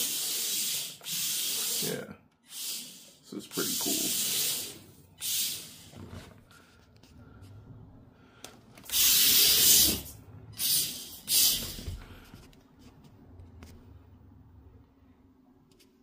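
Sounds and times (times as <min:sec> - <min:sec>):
toy car tyres hissing: 0:00.0 - 0:06.3, 0:08.8 - 0:12.3
small electric motor whirring: 0:08.9 - 0:11.9.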